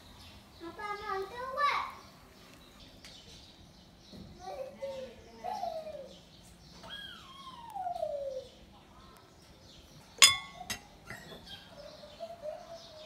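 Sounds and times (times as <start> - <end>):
utensil clinking on crockery: 10.2 - 11.5.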